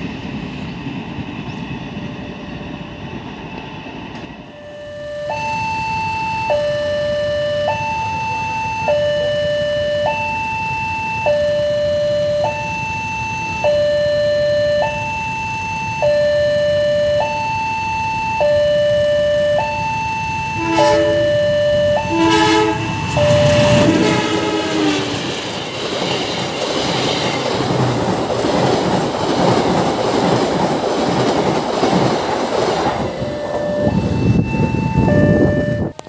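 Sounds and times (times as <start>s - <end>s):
crossing alarm two-note ringing: 4.5s - 25.2s, 33.0s - 36.0s
train horn blasts: 20.6s - 25.3s
train wheels clattering over rails: 22.8s - 33.7s.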